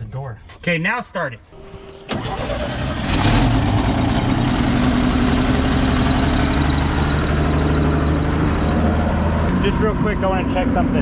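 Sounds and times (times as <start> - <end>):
truck engine idling: 2.1 - 9.5.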